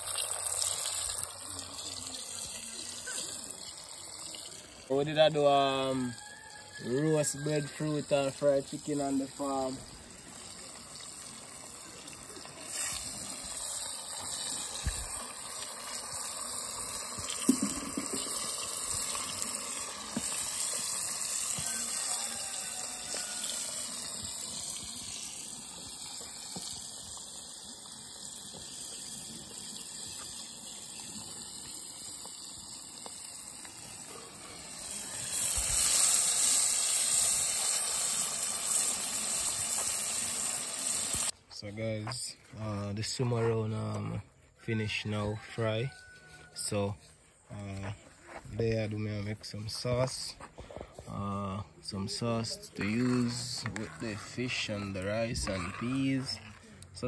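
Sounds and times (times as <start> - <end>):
fish sizzling in hot oil: 0.0 - 4.9, 6.2 - 41.4.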